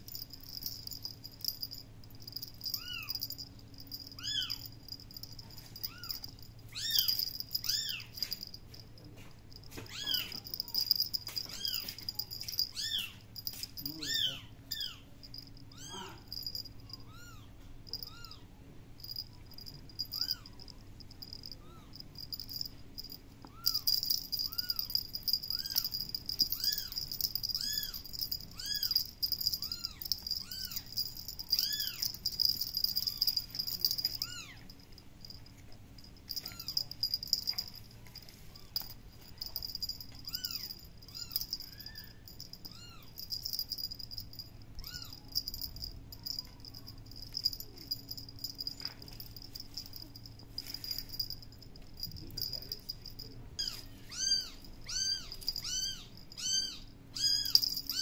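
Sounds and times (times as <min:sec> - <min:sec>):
kitten mewing: 0:15.7 - 0:16.3.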